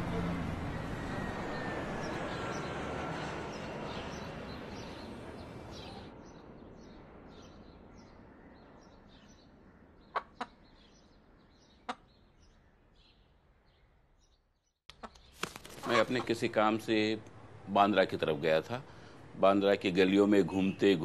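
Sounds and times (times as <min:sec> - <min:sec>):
jet aircraft noise: 0:00.0 - 0:06.1.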